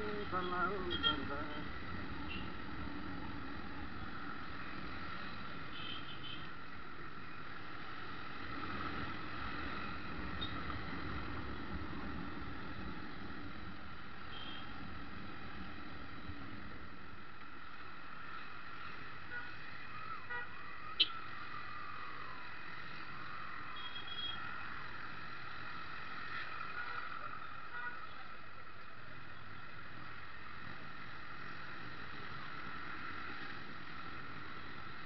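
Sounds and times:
road noise: 0.0s - 35.0s.

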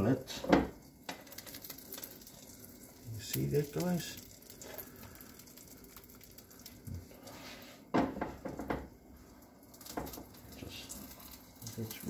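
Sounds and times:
frying pan clattering on grate: 7.9s - 8.9s, 9.8s - 10.4s.

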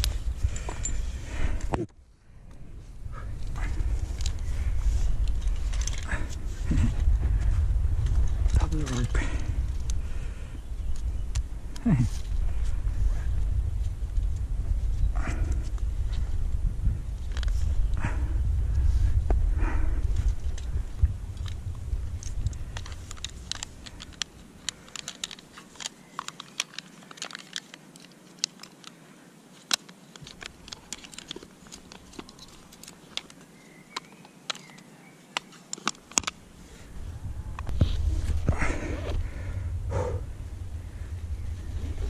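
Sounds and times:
climbing hardware clinking: 0.0s - 1.8s, 5.2s - 7.0s
wind buffeting microphone: 0.0s - 24.9s, 36.2s - 42.0s.

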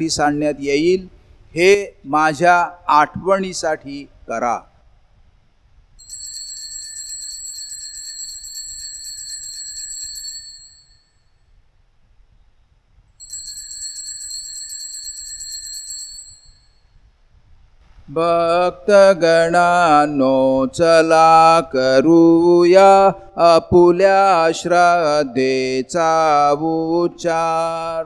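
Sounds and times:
bells ringing rapidly: 6.0s - 11.1s, 13.2s - 16.7s.

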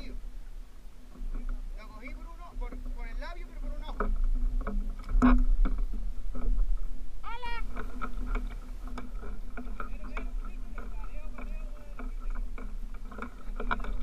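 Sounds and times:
wind rumble on microphone: 0.0s - 14.0s
clicks of fishing gear: 3.8s - 6.8s, 7.6s - 14.0s.

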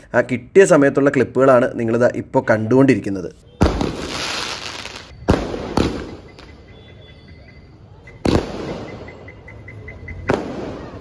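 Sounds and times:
fireworks bangs with hiss: 3.6s - 6.5s, 8.2s - 9.2s, 10.2s - 11.0s.

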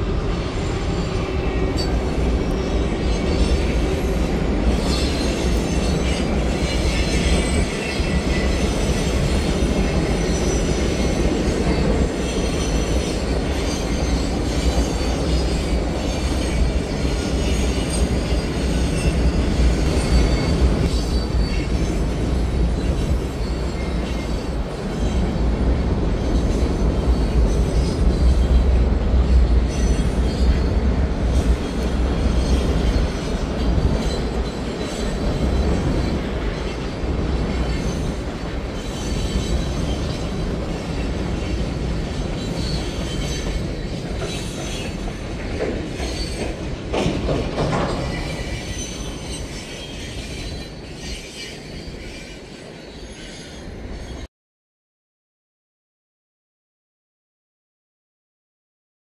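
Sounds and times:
train wheels rumbling on rails: 0.0s - 54.3s
train clatter: 0.6s - 52.3s
wheel squeal: 38.8s - 45.0s, 47.8s - 54.3s.

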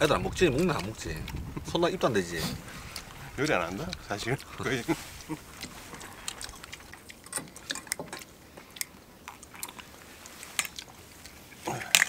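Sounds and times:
people chewing and eating: 0.0s - 12.0s
small crunches and clicks: 2.8s - 12.0s.

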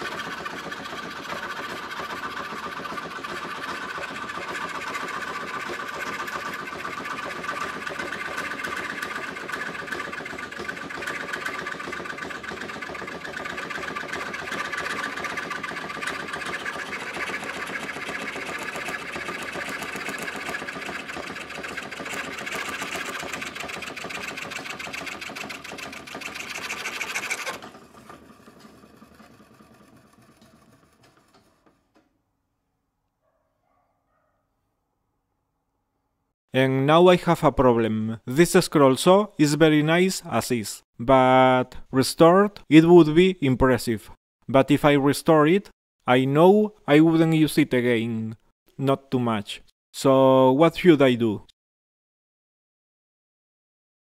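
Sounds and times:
scroll saw clattering: 0.0s - 32.2s.

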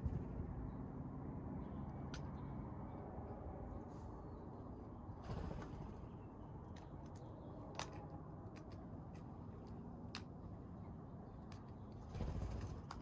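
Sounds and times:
low background rumble: 0.0s - 8.2s
bird pecking peanut shells: 6.7s - 10.4s.

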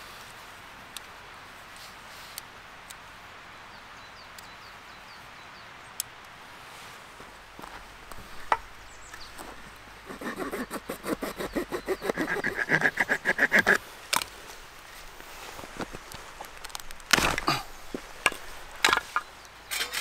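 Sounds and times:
light wooden knocks: 7.6s - 9.7s
knife scraping wooden stick: 10.1s - 14.3s.

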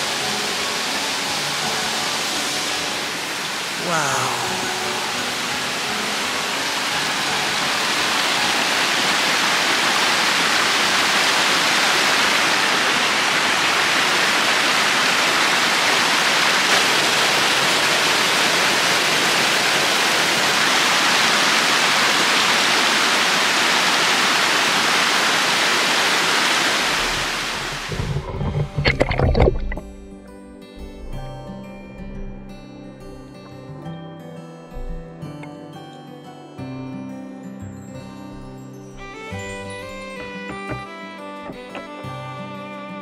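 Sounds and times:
stream rushing over rocks: 0.0s - 29.8s.

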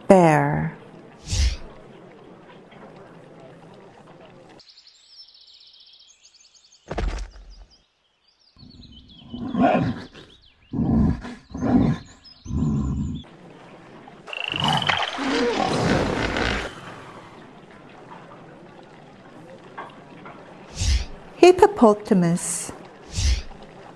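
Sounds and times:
birdsong: 0.8s - 21.3s
bear roaring: 9.3s - 13.2s.

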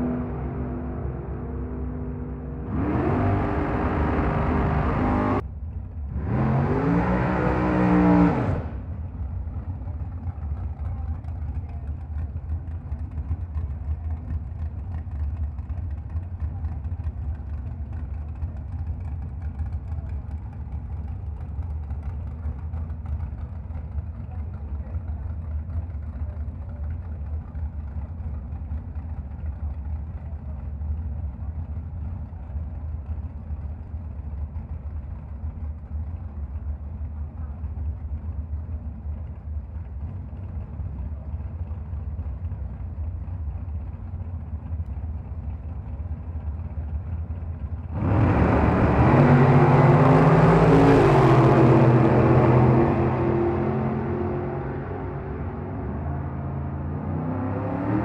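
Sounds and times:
racing car engine revving: 0.0s - 5.4s, 6.1s - 9.0s, 47.8s - 58.0s
low engine rumble: 0.0s - 58.0s.

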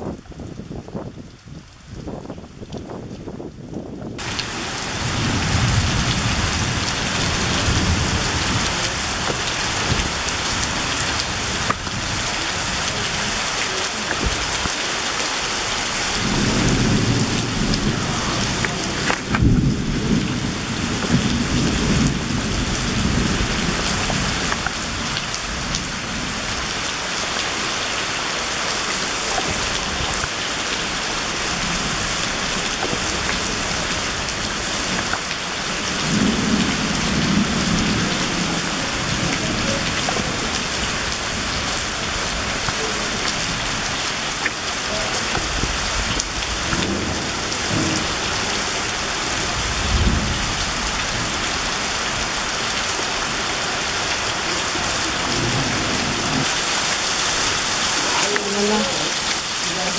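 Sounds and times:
heavy rain pouring: 0.0s - 59.9s
low rolls of thunder: 2.9s - 12.2s, 16.1s - 26.6s, 35.8s - 41.8s, 49.3s - 51.5s.

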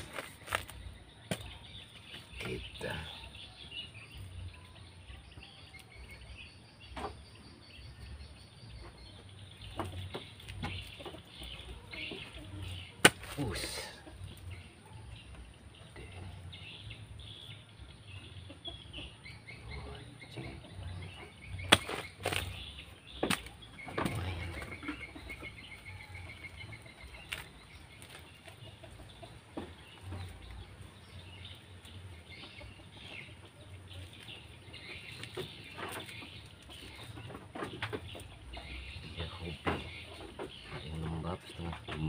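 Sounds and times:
earth clods crumbling by hand: 0.0s - 1.6s, 21.6s - 24.6s
birds calling: 0.0s - 42.0s
hoe chopping into soil: 13.0s - 13.6s, 21.6s - 24.2s.

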